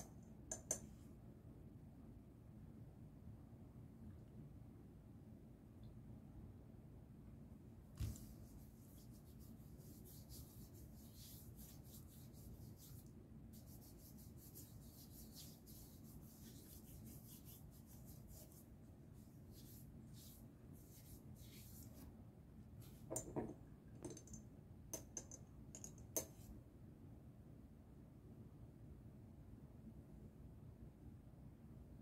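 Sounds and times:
fingertips rubbing skin: 8.0 - 22.0.

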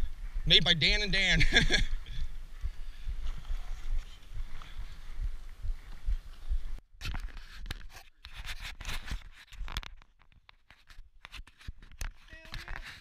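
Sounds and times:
rustling and scraping handling noise: 7.0 - 13.0.

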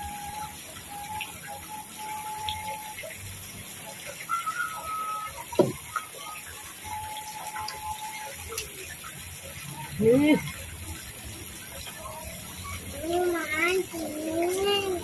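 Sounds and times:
faint whistle-like tones: 0.0 - 10.7
fountain spray falling on water: 0.0 - 15.0.

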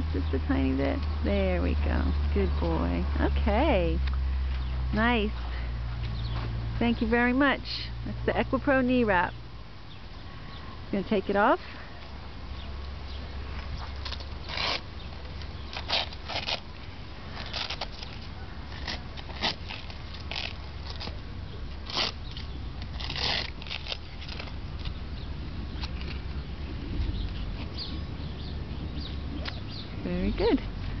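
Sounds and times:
steady low rumble: 0.0 - 31.0
hook-and-loop straps ripping open: 13.6 - 21.2, 21.8 - 25.0.

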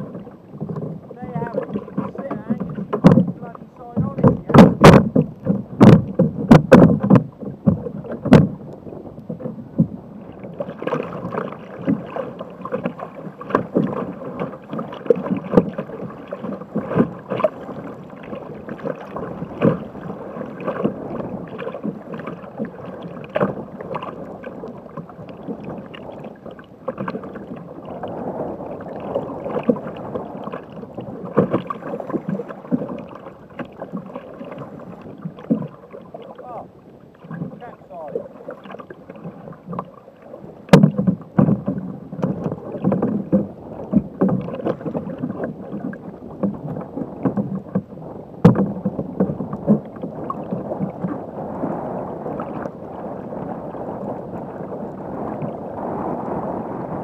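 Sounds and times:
paddle splashes: 0.0 - 57.0
water slapping against kayak hull: 0.0 - 57.0
loud knocks: 4.0 - 8.5.

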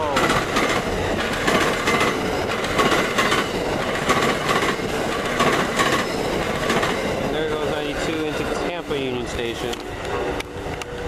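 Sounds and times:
train wheels rumbling on rail: 0.0 - 11.0
wheels clacking over rail joints: 0.0 - 11.0.

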